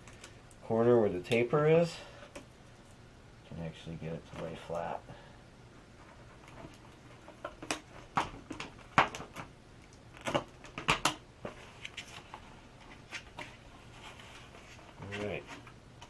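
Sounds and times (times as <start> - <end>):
tape crackling and clicking: 0.0 - 1.6, 5.7 - 16.0.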